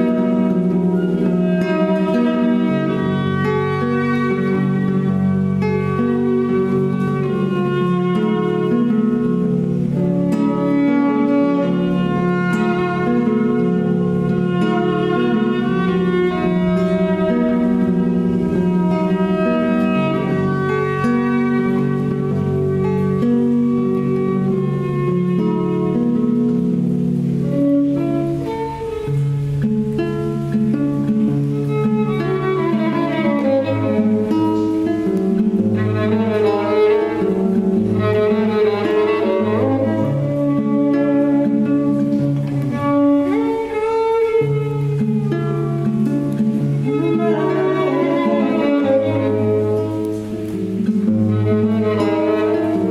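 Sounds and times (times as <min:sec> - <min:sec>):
soft acoustic guitar: 0:00.0 - 0:52.9
violin sliding bowed notes: 0:00.0 - 0:52.9.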